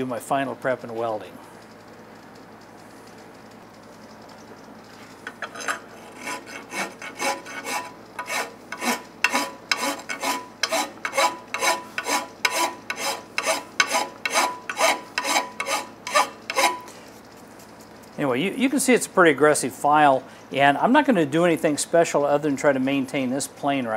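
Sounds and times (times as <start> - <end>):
file rasping on metal: 5.5 - 16.9.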